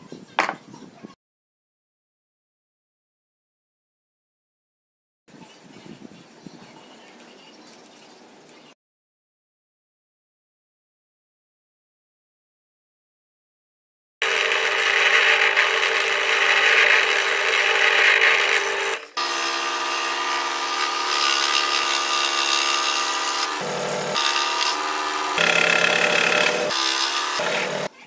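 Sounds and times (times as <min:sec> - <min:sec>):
drill press boring wood: 0:14.2 - 0:27.9
scroll saw cutting: 0:14.2 - 0:27.9.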